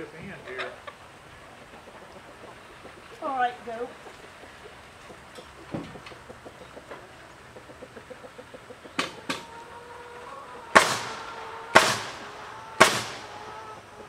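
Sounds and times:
hammer striking nails into wood: 0:10.8 - 0:13.3.

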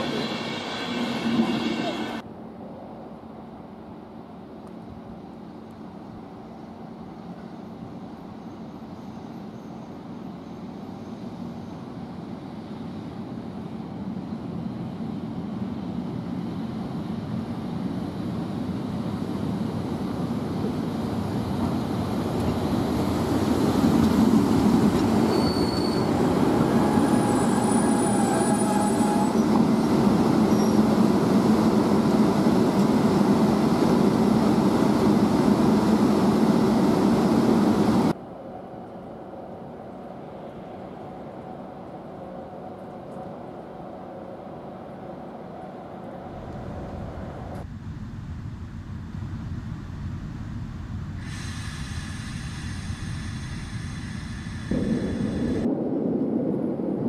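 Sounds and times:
train running noise: 0:00.0 - 0:55.8
brake squeals: 0:25.0 - 0:29.6.

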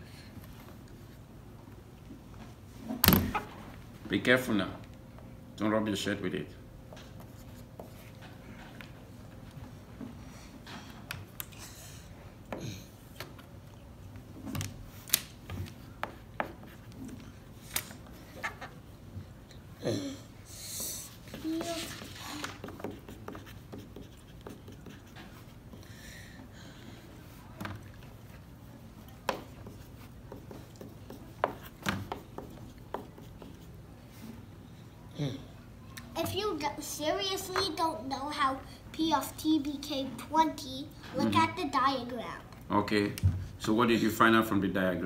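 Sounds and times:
marker tip tapping and scratching whiteboard: 0:20.8 - 0:25.8, 0:29.2 - 0:33.8.

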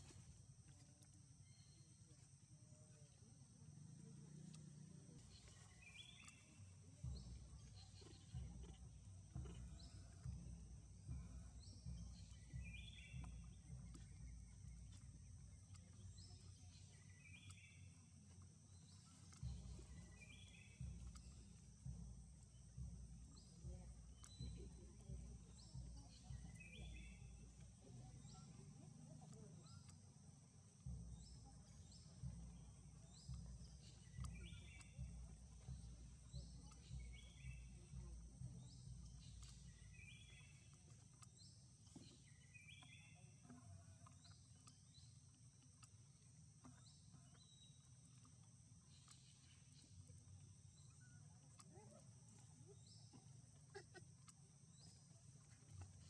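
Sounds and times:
low rumble: 0:03.1 - 0:45.1.

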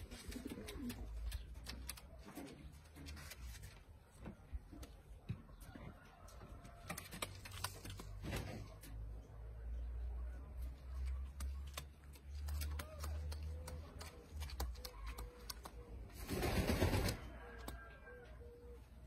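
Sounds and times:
pigeons cooing: 0:00.0 - 0:02.7.

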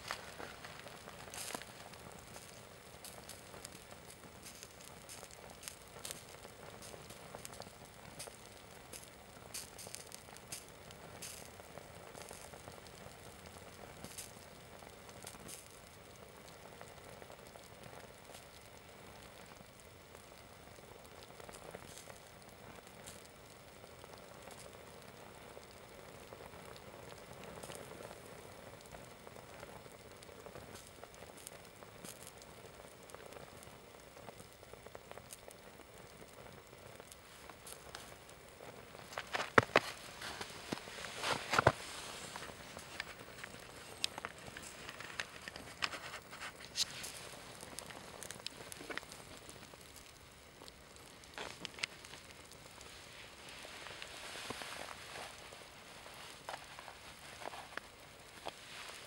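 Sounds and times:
burning fabric sizzling and crackling: 0:00.0 - 0:59.0
sharp pops: 0:38.9 - 0:49.3.

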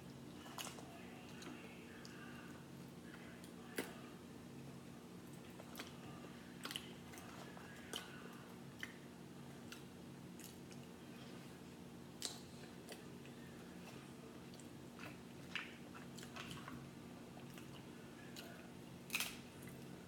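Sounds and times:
faint steady hum: 0:00.0 - 0:20.0
chewing: 0:05.2 - 0:11.5, 0:12.2 - 0:20.0.

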